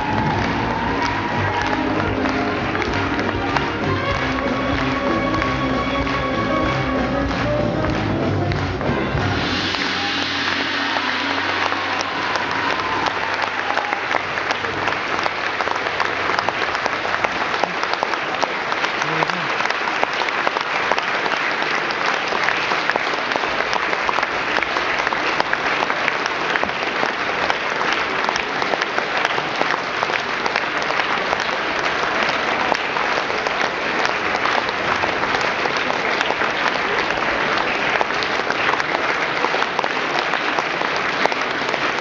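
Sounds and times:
audience applauding: 0.0s - 42.0s.

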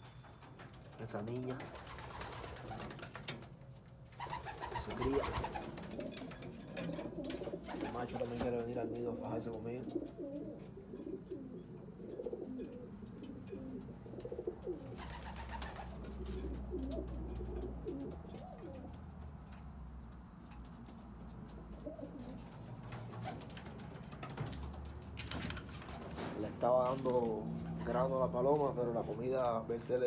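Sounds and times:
pigeons cooing: 4.2s - 19.2s, 21.4s - 24.4s.

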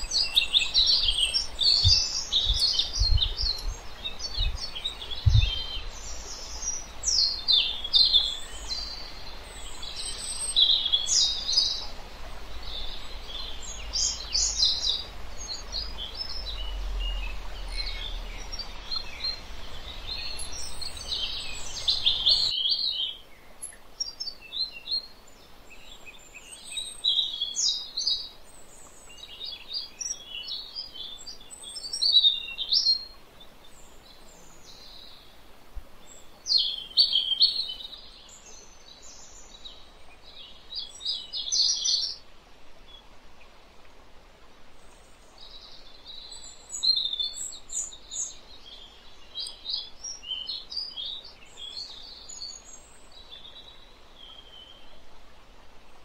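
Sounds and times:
small birds chirping: 0.0s - 43.2s, 44.8s - 55.0s
background hiss: 0.0s - 56.0s
low rumble with thumps: 5.2s - 5.8s.

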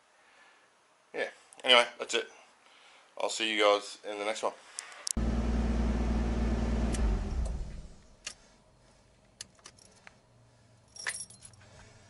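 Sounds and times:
car engine idling: 5.2s - 8.1s
keys jangling in ignition: 9.5s - 10.1s, 10.9s - 11.6s.

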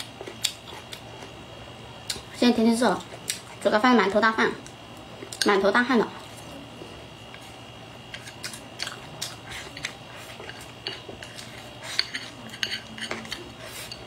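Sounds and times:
person chewing food: 0.0s - 1.4s, 8.1s - 14.0s.

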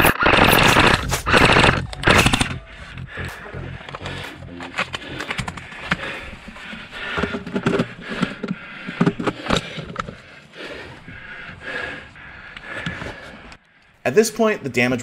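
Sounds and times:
sharp clicks and knocks: 0.0s - 3.1s, 3.8s - 10.2s.

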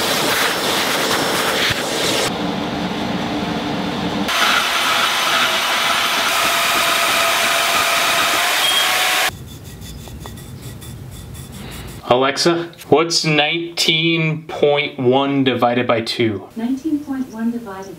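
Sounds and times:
shop vacuum hissing: 0.0s - 2.4s, 4.2s - 9.3s
low hum: 2.3s - 12.1s
bandsaw cutting steel: 4.3s - 12.1s.

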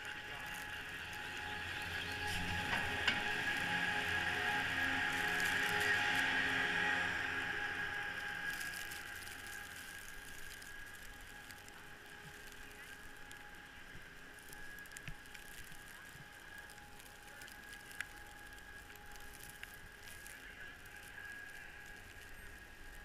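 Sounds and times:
faint steady whine: 0.0s - 23.0s
skis sliding over snow: 0.0s - 23.0s.

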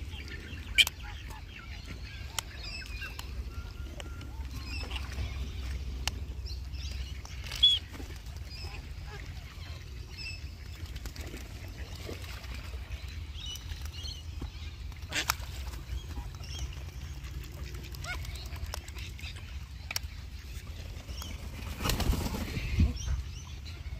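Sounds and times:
birds calling: 0.0s - 23.9s
wind rumble on microphone: 21.6s - 23.9s.

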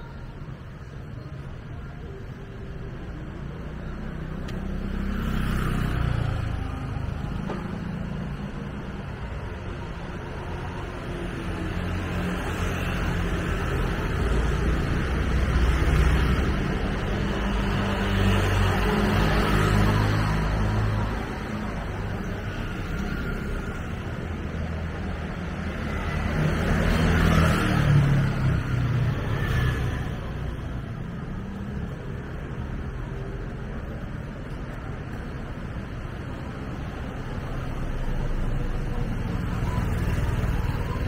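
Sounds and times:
passing vehicle engines humming: 3.8s - 41.0s.

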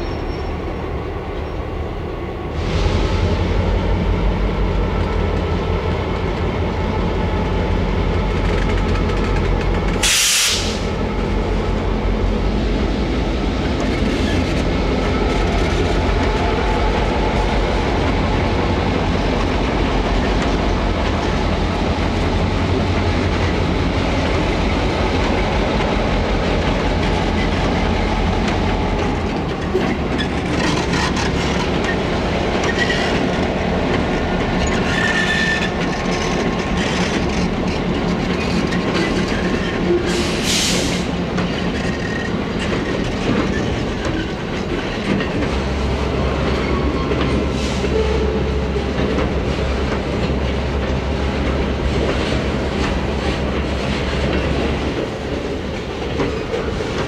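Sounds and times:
diesel locomotives droning: 0.0s - 57.0s
sharp hiss: 10.0s - 11.0s.

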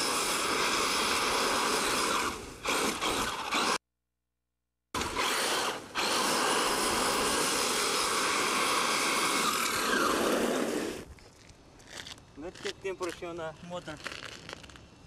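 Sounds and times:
electric motors whining: 5.0s - 11.0s
tyres churning through loose dirt: 5.0s - 11.1s.

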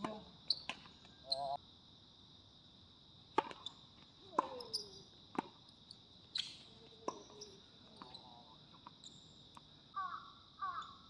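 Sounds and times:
high insect drone: 0.0s - 11.0s
tennis ball hit by rackets: 3.3s - 3.6s, 4.3s - 4.7s.

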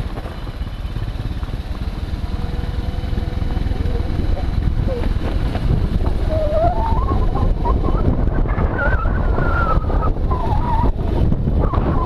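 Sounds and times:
motorcycle engine rumble: 0.0s - 12.0s
wind buffeting microphone: 0.0s - 12.0s
wavering whistle-like tone: 6.3s - 12.0s.

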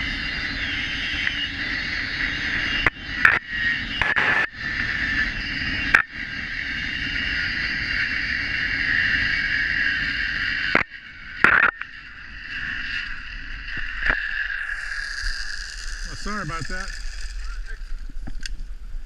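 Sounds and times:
pulley wheels whining on cable: 0.0s - 19.0s.

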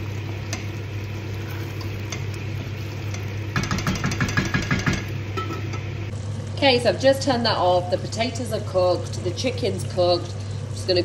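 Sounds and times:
wooden spoon stirring in pot: 0.0s - 5.0s
steady low hum: 0.0s - 11.0s.

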